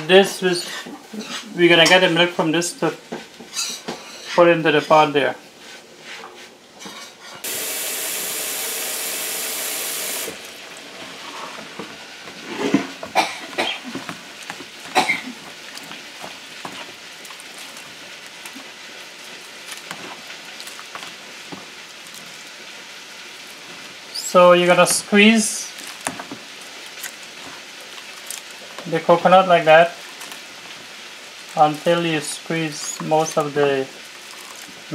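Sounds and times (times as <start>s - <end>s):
water running into a bowl: 7.4s - 11.6s
wet squelching of hand mixing: 10.1s - 34.9s.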